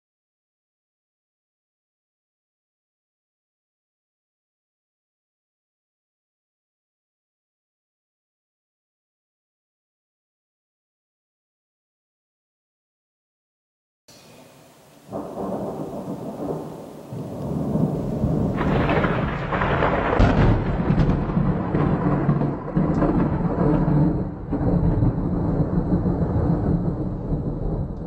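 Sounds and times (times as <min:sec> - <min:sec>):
rolling thunder: 0:15.1 - 0:28.0.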